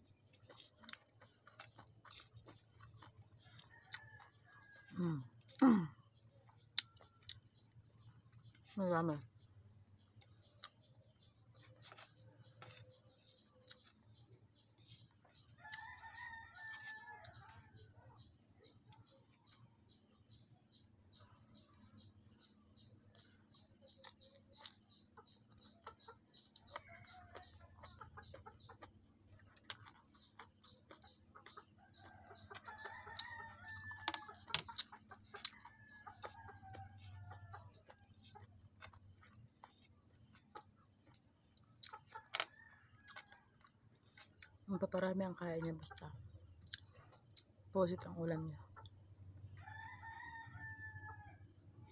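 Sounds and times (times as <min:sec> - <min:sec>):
close-up chewing clicks: 0:00.0 - 0:50.3
faint rooster crowing: 0:15.5 - 0:18.2, 0:49.6 - 0:51.4.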